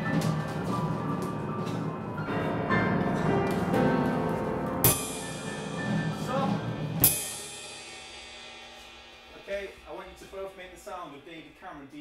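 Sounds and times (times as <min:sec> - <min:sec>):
drum kit playing: 0:00.0 - 0:12.0
cymbal crashes ringing: 0:04.8 - 0:12.0.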